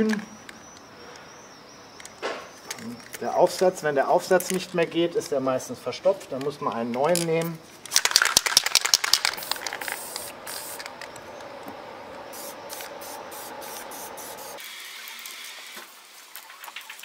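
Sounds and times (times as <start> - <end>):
spray can clicks: 7.9 - 11.2
spray can hissing: 7.9 - 11.4, 12.2 - 15.8.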